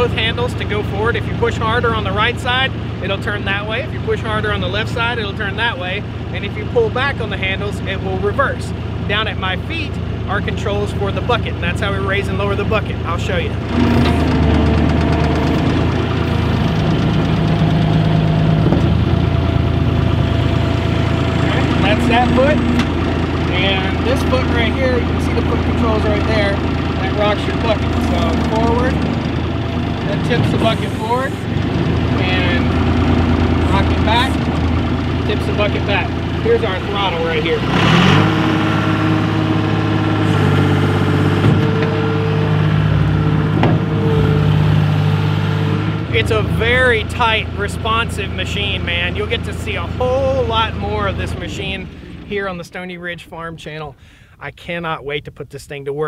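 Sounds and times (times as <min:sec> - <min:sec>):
diesel engine running: 0:00.0 - 0:54.5
hydraulics moving loader bucket: 0:11.5 - 0:52.6
short knocks: 0:43.5 - 0:44.0.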